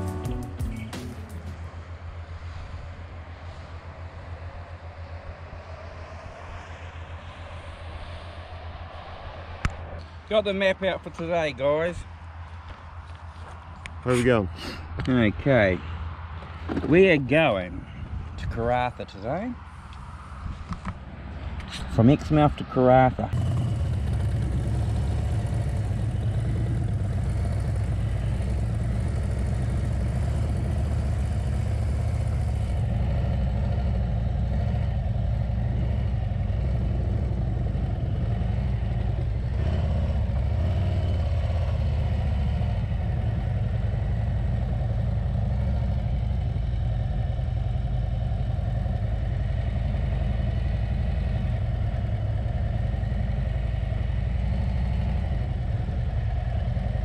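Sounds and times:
motorcycle engine running: 0.0s - 1.9s, 23.2s - 57.0s.

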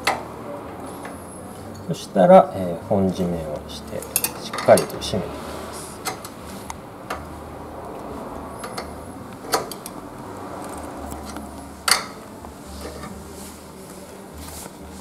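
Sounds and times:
spanner clicking on axle nut: 3.9s - 5.0s, 8.6s - 10.0s.

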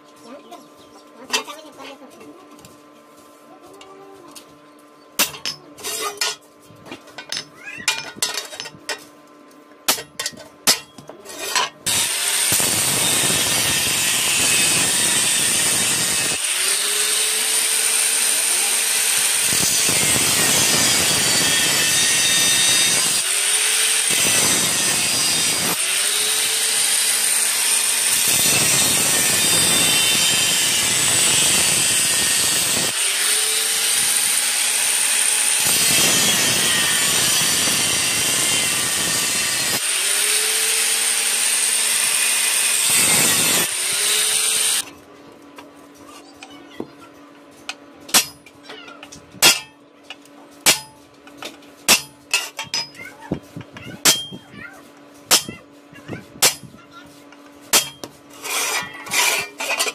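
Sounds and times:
angle grinder whining: 11.9s - 44.9s.

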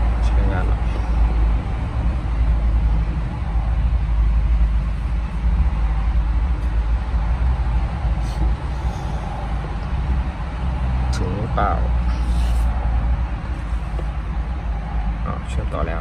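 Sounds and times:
engine idling inside cab: 0.0s - 16.0s.

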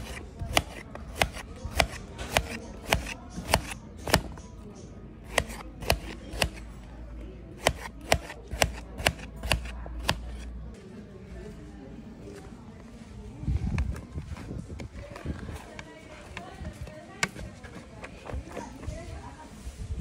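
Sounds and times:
knife cutting cucumber: 0.0s - 4.6s, 5.2s - 6.7s, 7.5s - 10.5s.

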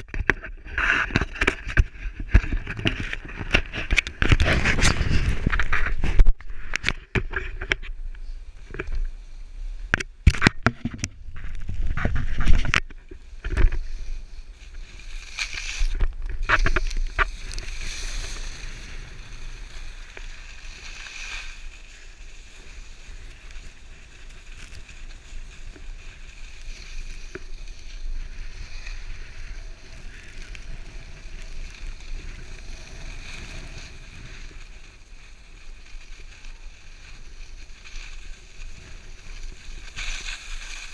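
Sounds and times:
skis gliding over snow: 0.0s - 10.0s, 10.7s - 40.9s.

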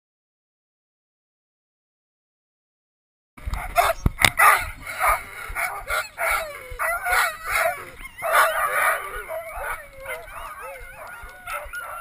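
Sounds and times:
sled dogs yelping and barking: 3.4s - 12.0s.

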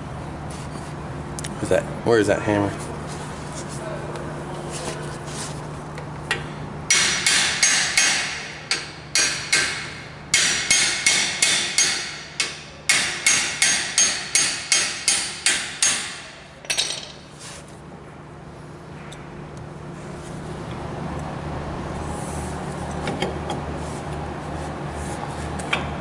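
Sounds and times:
hammer striking metal: 6.9s - 17.2s.

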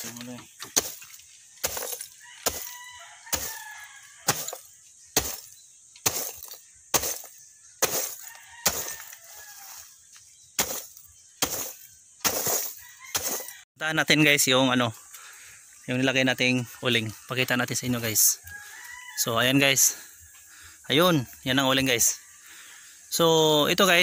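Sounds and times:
charcoal being pounded: 0.0s - 9.6s, 10.6s - 13.6s.

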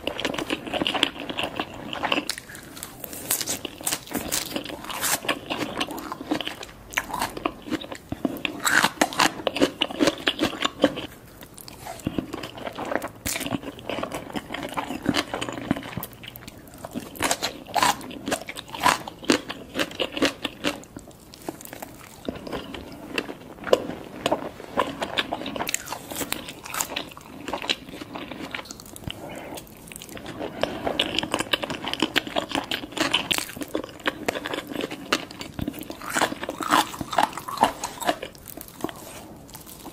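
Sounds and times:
crunchy food chewing: 0.0s - 39.9s.

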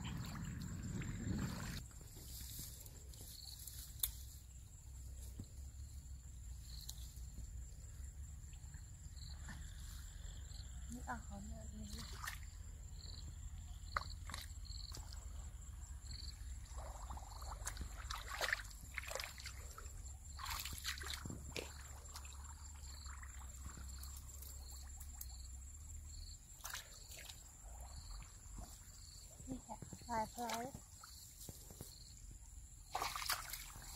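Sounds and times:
small splashes and squelches: 0.0s - 4.1s, 11.8s - 12.7s, 13.9s - 15.4s, 16.5s - 25.5s, 26.5s - 29.1s, 29.9s - 31.7s, 32.8s - 33.9s
hands sloshing in muddy water: 11.9s - 12.6s, 14.0s - 15.3s, 16.6s - 24.2s, 32.9s - 33.9s.

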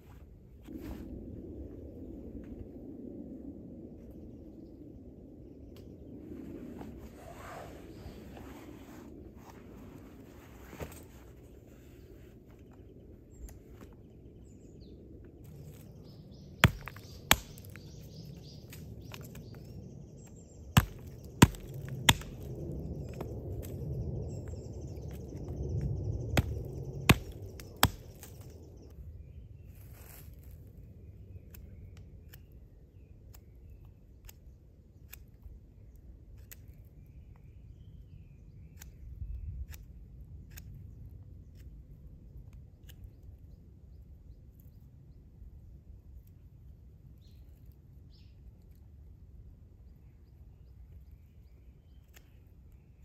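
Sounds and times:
hatchet chopping a log: 16.6s - 17.9s, 20.8s - 22.5s, 26.4s - 28.4s
knife carving wood: 16.6s - 17.9s, 20.8s - 23.2s, 26.4s - 28.5s.

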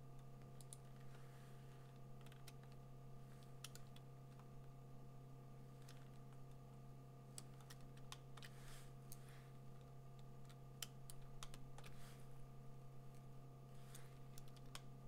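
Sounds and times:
low electrical hum: 0.0s - 15.0s
keyboard keys clicking: 2.2s - 2.8s, 3.5s - 4.1s.

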